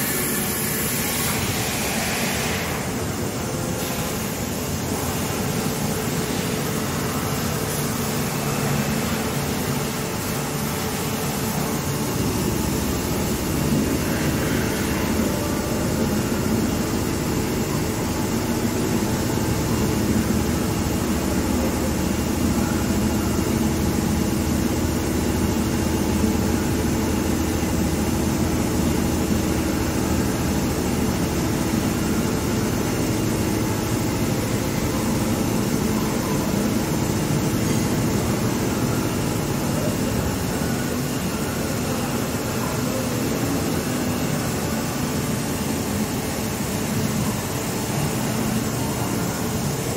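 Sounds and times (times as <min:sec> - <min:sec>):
coolant spray hiss: 0:00.0 - 0:16.5
machine spindle hum: 0:00.0 - 0:49.9.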